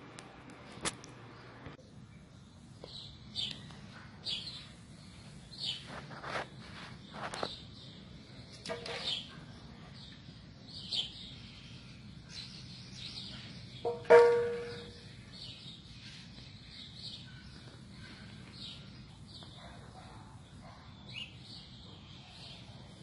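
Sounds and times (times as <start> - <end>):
birds chirping: 1.2 - 23.0
metal bowl knocks and clinks: 8.6 - 9.1, 13.8 - 15.0.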